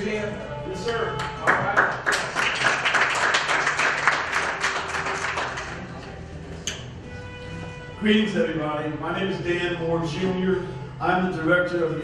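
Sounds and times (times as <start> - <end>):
audience clapping: 1.2 - 5.9.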